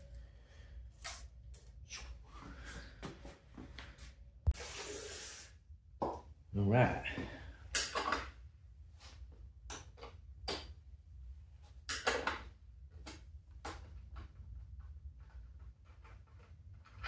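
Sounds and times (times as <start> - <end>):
low steady hum: 0.0 - 4.6.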